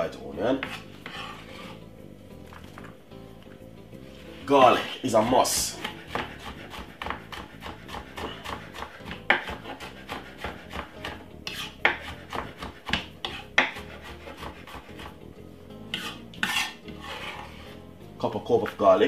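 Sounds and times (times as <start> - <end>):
rasping scrapes of garlic: 0.5 - 1.9, 4.4 - 15.2, 15.9 - 17.8.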